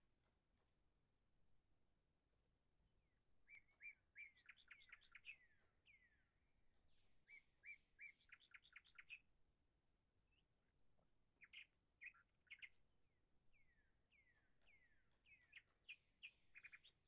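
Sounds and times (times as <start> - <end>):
small bird chirping: 3.5 - 6.2, 7.3 - 9.2, 11.4 - 12.7, 13.6 - 17.0.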